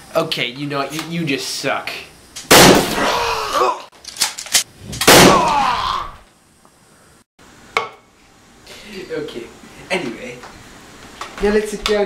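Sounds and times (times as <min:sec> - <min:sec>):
person yelling loudly: 0:05.3 - 0:06.2.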